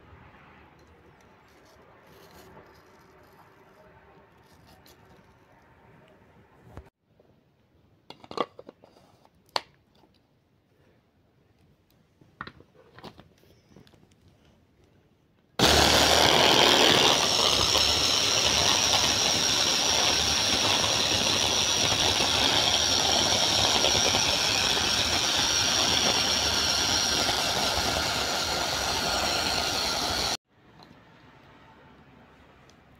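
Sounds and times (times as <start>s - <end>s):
hand blender motor whining: 15.6s - 30.4s.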